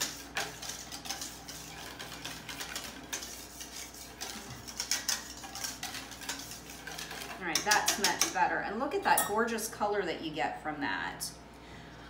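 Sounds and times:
whisk clicking in metal bowl: 0:00.0 - 0:08.5.

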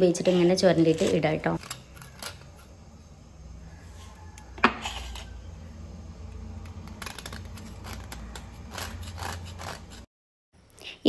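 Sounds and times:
knife scraping jaggery: 0:00.0 - 0:03.2, 0:03.8 - 0:05.5, 0:06.4 - 0:10.1.

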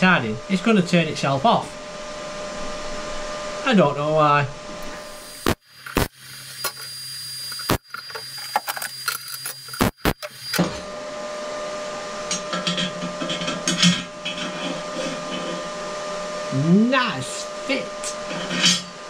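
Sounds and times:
electric welding arc crackling: 0:04.8 - 0:10.6
steel parts scraped and clinked: 0:07.5 - 0:09.9.

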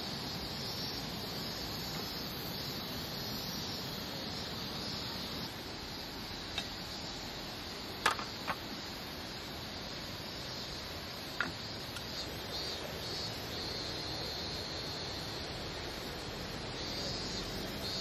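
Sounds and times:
steady outdoor hiss: 0:00.0 - 0:18.0
metal sandwich maker knocks: 0:08.0 - 0:08.6.

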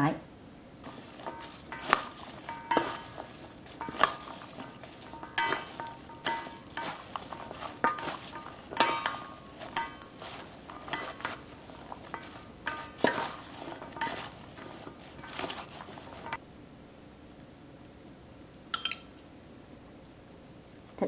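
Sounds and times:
utensils clinking in metal bowl: 0:00.8 - 0:16.4, 0:18.8 - 0:19.2
soft rustle of salad: 0:00.8 - 0:16.6.

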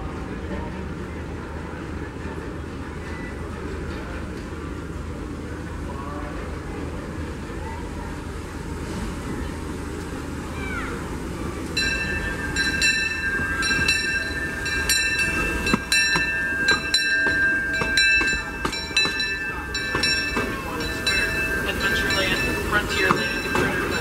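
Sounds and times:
steam train rolling slowly: 0:00.0 - 0:24.0
wheels clicking over rail joints: 0:11.5 - 0:24.0
train wheels squealing on rails: 0:11.7 - 0:24.0.

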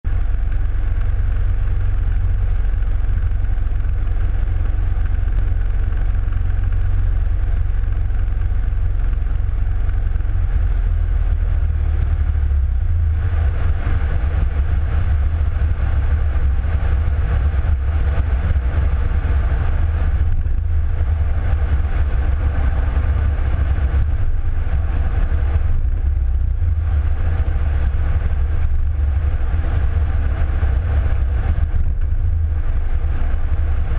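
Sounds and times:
light aircraft engine droning: 0:00.0 - 0:33.9.

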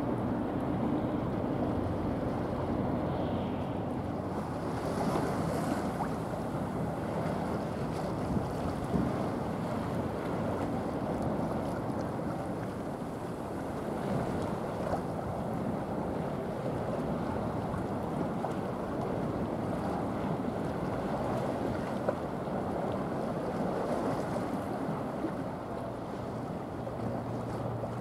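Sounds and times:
wind noise on microphone: 0:00.0 - 0:25.4.

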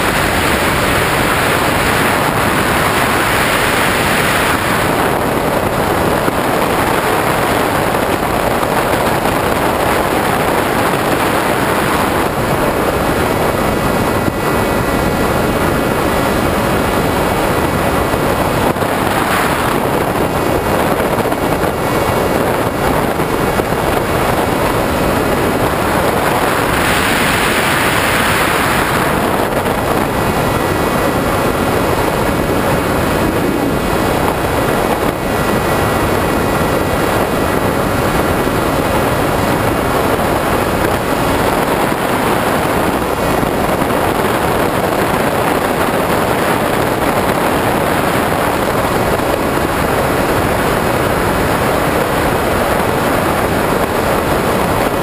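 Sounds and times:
air rush and propeller noise: 0:00.0 - 0:55.0.

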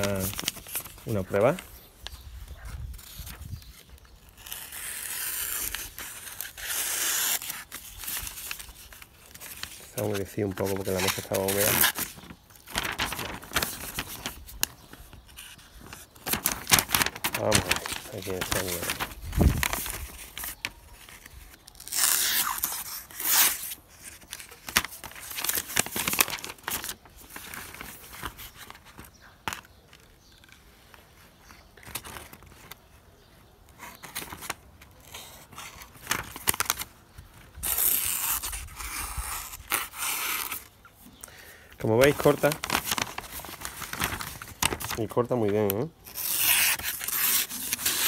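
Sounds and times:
paper rustling: 0:00.0 - 0:32.9, 0:33.7 - 0:41.2, 0:41.8 - 0:48.0
knife slicing through paper: 0:04.3 - 0:14.4, 0:46.1 - 0:48.0.

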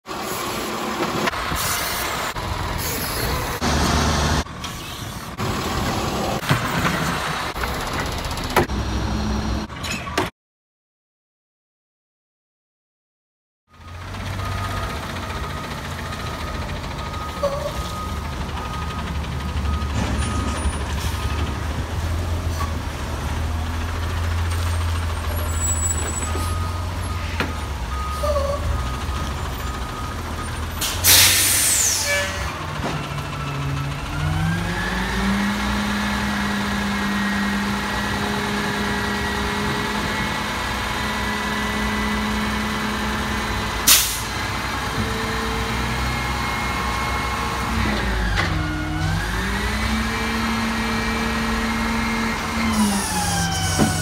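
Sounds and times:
truck diesel engine running: 0:13.8 - 0:31.2
air-brake hiss: 0:30.8 - 0:32.2.

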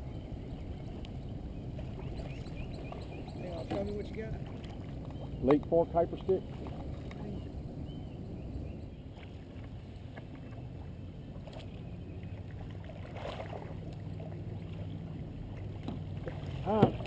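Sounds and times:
water around a kayak: 0:00.0 - 0:17.0
wind rumble on microphone: 0:00.0 - 0:17.0
water splash: 0:12.4 - 0:17.0.

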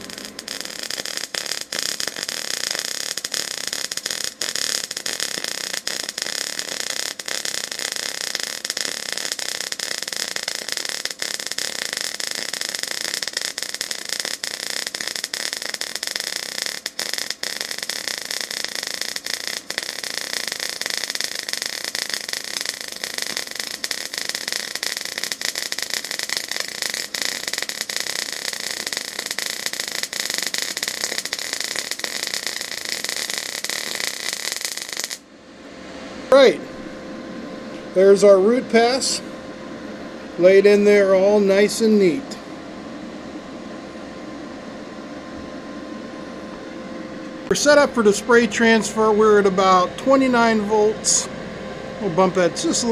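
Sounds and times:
welding arc crackling: 0:00.0 - 0:35.2, 0:47.4 - 0:51.3.

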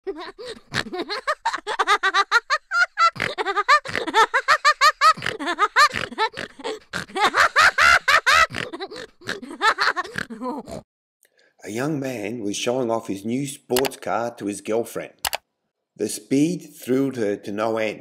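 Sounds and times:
people laughing: 0:00.1 - 0:10.2.

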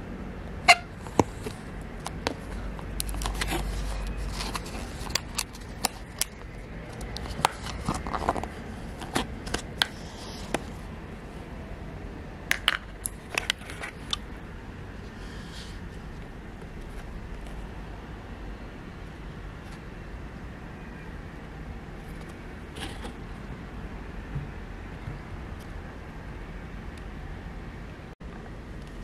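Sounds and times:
paper cup lid clicks and scrapes: 0:01.0 - 0:10.7, 0:22.0 - 0:23.2.

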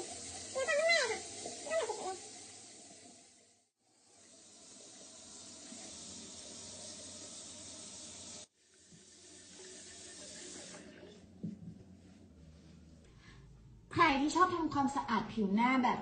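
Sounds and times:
tap water running into sink: 0:00.0 - 0:03.5, 0:04.1 - 0:11.6.

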